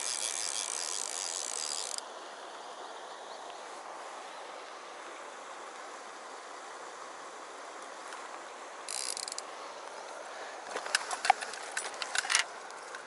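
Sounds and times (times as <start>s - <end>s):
fly reel ratchet clicking: 0.0s - 2.0s, 8.9s - 9.5s, 10.9s - 13.0s
stream flowing: 0.0s - 13.0s.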